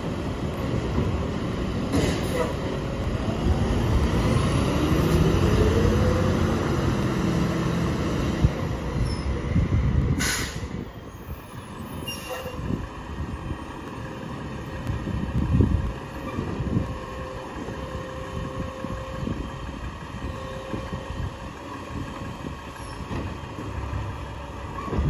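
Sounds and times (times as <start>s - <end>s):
truck engine accelerating: 2.7s - 10.9s
air brakes hiss: 10.2s - 10.8s.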